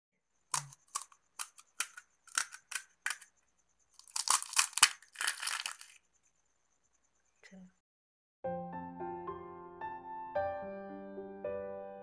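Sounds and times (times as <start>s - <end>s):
crisp shells cracking: 0.5s - 3.3s, 3.9s - 6.0s
shell crunching in hand: 0.5s - 3.3s, 3.9s - 6.0s.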